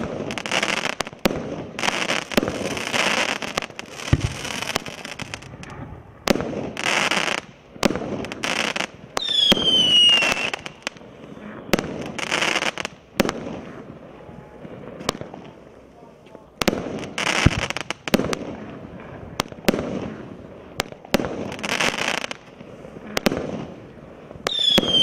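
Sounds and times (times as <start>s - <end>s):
fireworks bangs: 0.0s - 25.0s
fireworks crackling: 0.0s - 25.0s
falling firework whistle: 9.2s - 12.8s, 24.4s - 25.0s.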